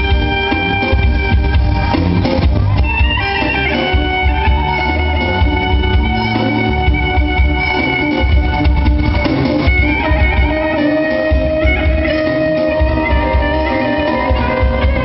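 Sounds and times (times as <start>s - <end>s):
live electric band playing: 0.0s - 15.0s
wind instrument melody: 0.0s - 15.0s.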